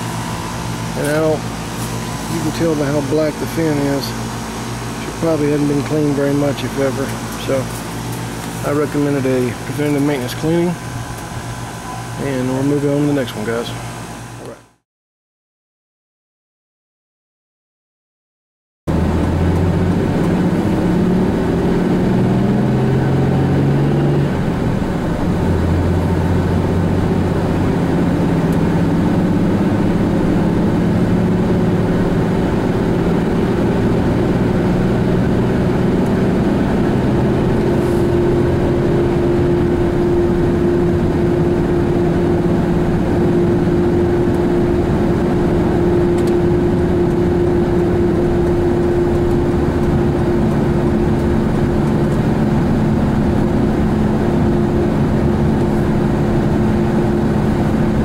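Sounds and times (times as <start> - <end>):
engine and road noise inside vehicle: 0.0 - 14.6, 18.9 - 58.0
low hum: 18.9 - 58.0.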